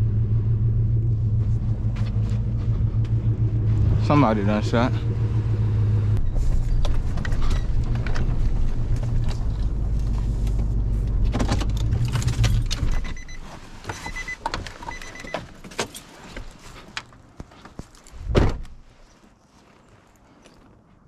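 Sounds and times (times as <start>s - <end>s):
truck engine and tyres rumbling: 0.0s - 21.0s.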